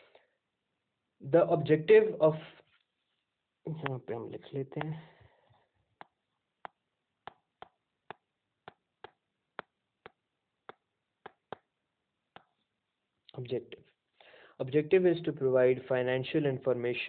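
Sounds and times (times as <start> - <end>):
stylus tapping on touchscreen: 3.7 - 4.1, 4.7 - 5.1, 5.9 - 12.7.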